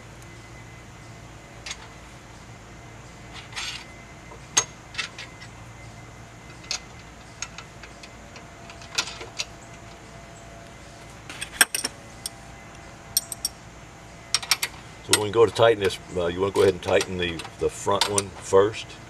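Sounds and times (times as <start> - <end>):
metal bolts and nuts clinking: 3.3 - 3.9, 4.5 - 5.5, 6.5 - 10.1, 11.3 - 12.4, 13.2 - 13.6, 14.3 - 18.5.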